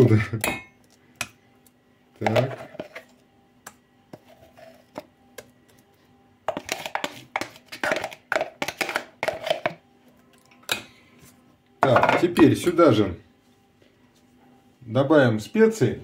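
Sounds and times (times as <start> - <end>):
spoon scraping and knocking: 2.2 - 3.2, 4.1 - 5.1, 6.5 - 9.8.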